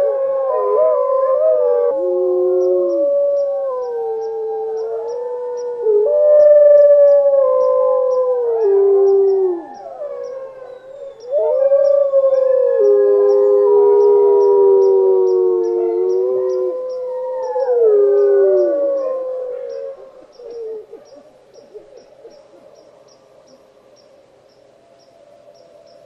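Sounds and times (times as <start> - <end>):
wolves howling: 0.0 - 22.9.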